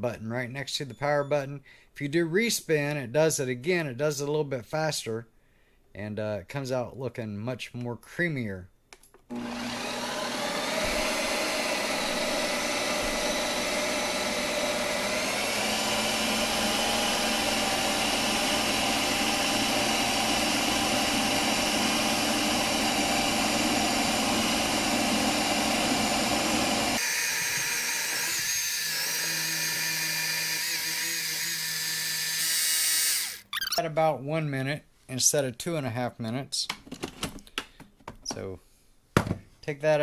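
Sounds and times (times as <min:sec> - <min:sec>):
ice cream maker motor whirring: 0:09.3 - 0:33.8.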